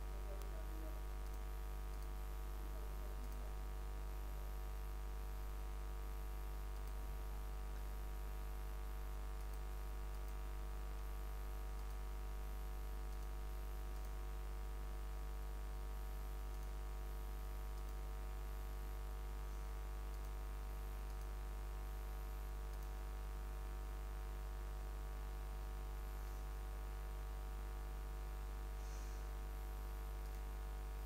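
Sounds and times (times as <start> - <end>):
low electrical mains hum: 0.0 - 31.0
computer mouse clicks: 1.2 - 2.2, 3.1 - 3.5, 6.7 - 7.0, 9.4 - 10.4, 11.7 - 12.0, 13.1 - 13.4, 14.0 - 14.2, 16.5 - 16.8, 17.7 - 18.0, 21.1 - 21.4, 22.6 - 23.0, 30.2 - 30.5.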